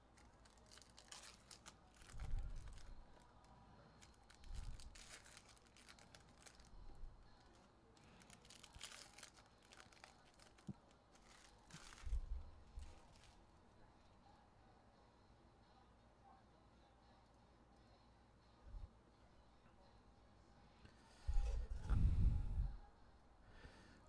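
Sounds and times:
foil wrappers crinkling and tearing: 0.0s - 13.4s.

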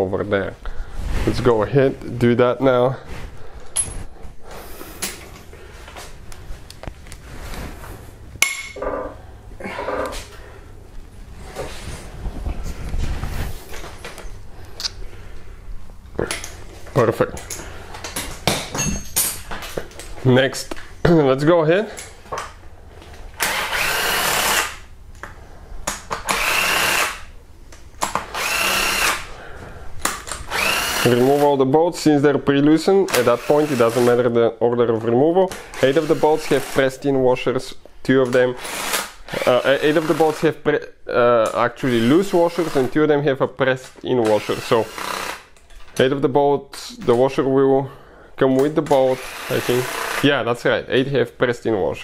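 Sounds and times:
power tool high whine: 28.4s - 29.3s, 30.5s - 31.4s, 44.4s - 45.4s, 49.2s - 50.2s.

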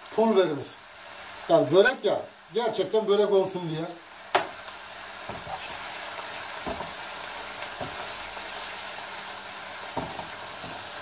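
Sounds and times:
filling sizzling in a frying pan: 0.0s - 11.0s
wooden spoon knocking on pan: 4.3s - 4.6s, 6.6s - 7.0s, 9.9s - 10.8s.

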